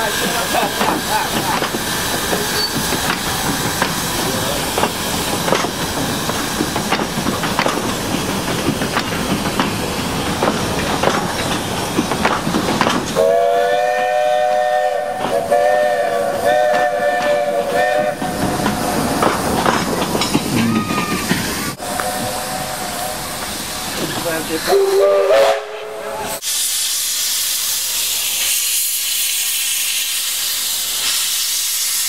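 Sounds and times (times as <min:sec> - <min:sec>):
wheels clicking on track: 0:00.0 - 0:13.3, 0:16.6 - 0:22.2
hiss of steam: 0:00.0 - 0:32.0
steam whistle blast: 0:13.2 - 0:18.2, 0:21.8 - 0:23.2, 0:24.7 - 0:27.3.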